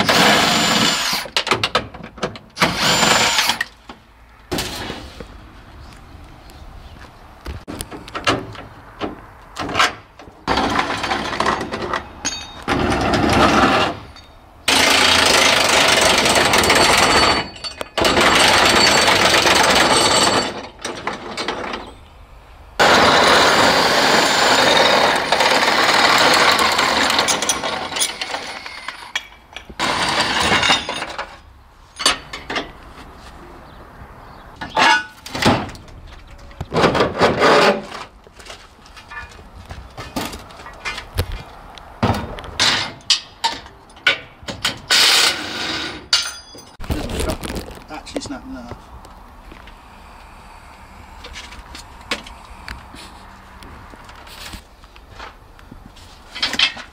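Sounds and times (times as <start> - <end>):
metallic knocks and clanks: 7.7 - 14.8, 32.0 - 32.9, 42.0 - 46.8
power tool running: 14.7 - 17.1.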